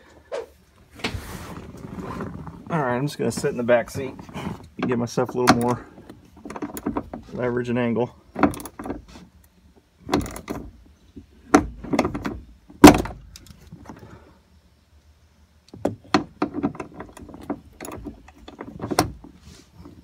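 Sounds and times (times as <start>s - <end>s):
socket wrench clanking and clicking: 4.8s - 7.2s, 8.4s - 9.0s, 10.1s - 10.7s.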